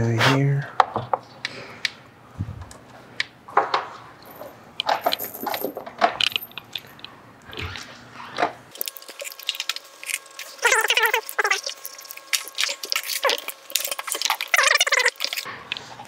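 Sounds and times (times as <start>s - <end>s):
small metal parts clinking: 4.2s - 7.1s.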